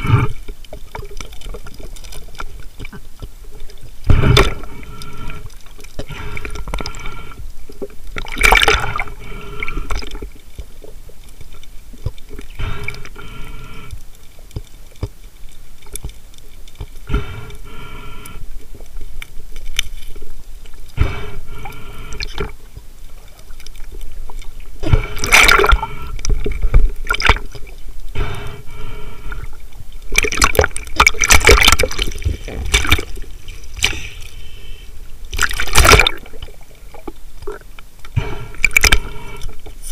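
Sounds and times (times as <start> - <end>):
underwater sloshing and bubbling: 0.0 - 39.9
water splashing surges: 8.2 - 10.4, 23.4 - 28.7, 30.0 - 34.4, 35.2 - 39.0.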